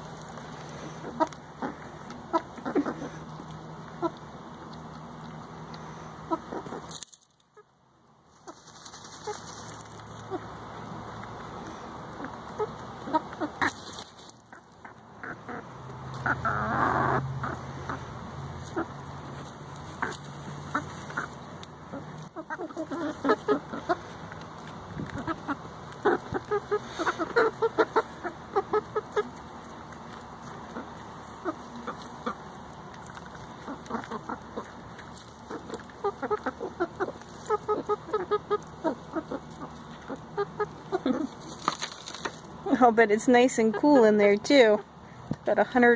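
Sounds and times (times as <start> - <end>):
hens clucking: 0.0 - 7.0, 8.3 - 45.4
low chicken sounds: 0.7 - 5.0, 8.4 - 42.2
rustle of feathers and dirt: 8.3 - 44.1.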